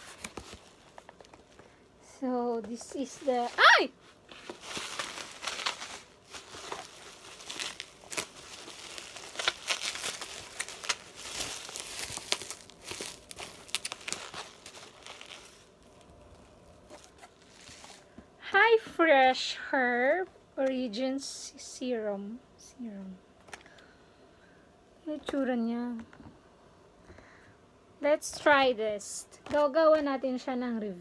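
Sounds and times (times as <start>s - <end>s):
bubble wrap crackles: 0.0s - 1.8s, 2.4s - 18.7s
bubble wrap crinkling: 0.0s - 18.7s.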